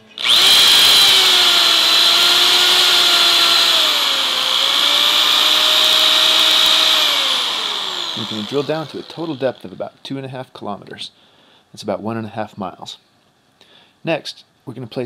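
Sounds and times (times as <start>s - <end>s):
electric drill whirring: 0.0s - 9.6s.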